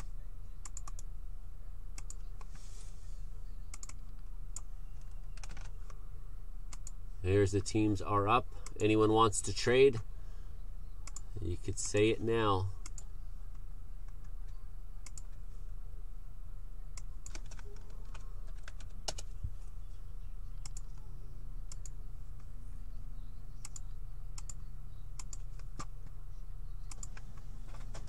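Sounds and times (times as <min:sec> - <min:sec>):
keystrokes on a computer keyboard: 0:00.0 - 0:01.1, 0:02.0 - 0:02.5, 0:03.7 - 0:04.0, 0:04.6 - 0:05.7, 0:17.0 - 0:19.3, 0:25.2 - 0:25.9, 0:26.9 - 0:28.0
steady low hum: 0:00.0 - 0:28.0.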